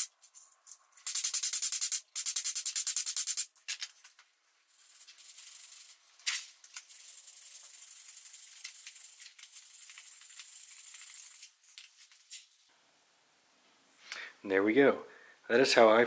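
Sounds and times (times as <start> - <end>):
wire brush scratching metal: 4.7 - 11.6.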